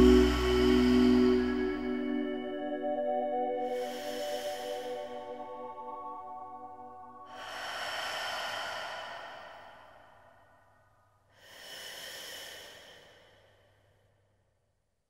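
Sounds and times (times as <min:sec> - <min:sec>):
breathy hiss-like noise: 0:00.0 - 0:02.5, 0:03.6 - 0:06.0, 0:06.7 - 0:10.6, 0:11.3 - 0:13.8.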